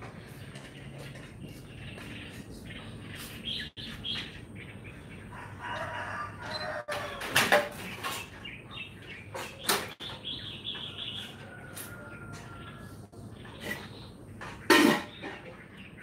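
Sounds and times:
rooster crowing: 0:05.3 - 0:07.4, 0:10.9 - 0:13.1.

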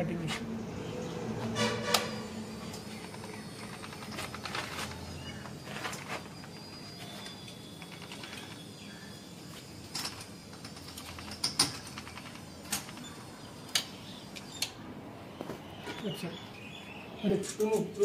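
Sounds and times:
metal frame clicks and creaks: 0:01.6 - 0:06.5.

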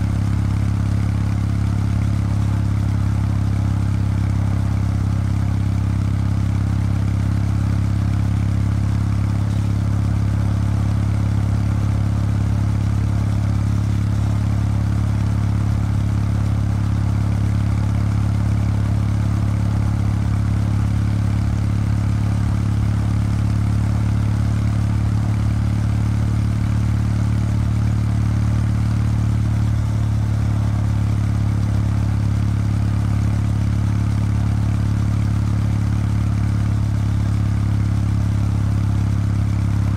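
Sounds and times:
motorcycle engine cruising: 0:00.0 - 0:24.1.

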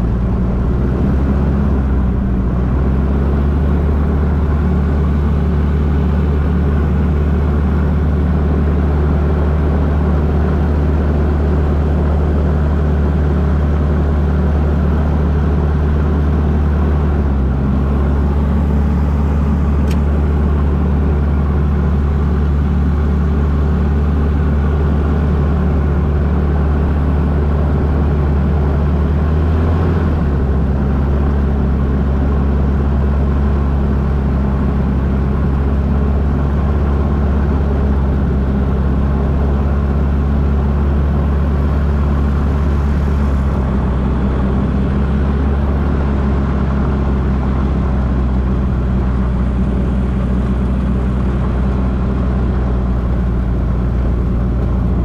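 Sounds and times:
gyrocopter engine and propeller drone: 0:00.0 - 0:55.0.

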